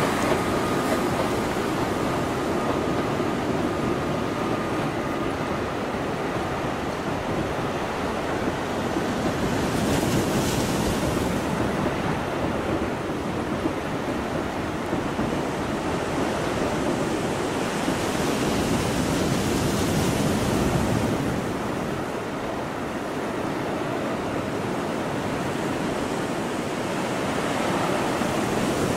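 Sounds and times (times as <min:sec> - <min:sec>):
surf washing over rocks: 0:00.0 - 0:28.9
wind on microphone: 0:00.0 - 0:28.9.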